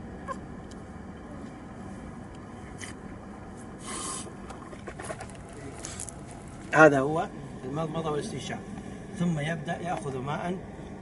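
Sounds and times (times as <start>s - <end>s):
low background noise: 0.0s - 11.0s
water spraying hiss: 3.8s - 4.3s.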